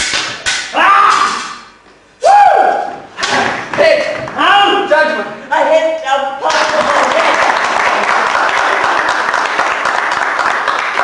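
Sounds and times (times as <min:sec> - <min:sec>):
audience applauding: 0:06.6 - 0:11.0.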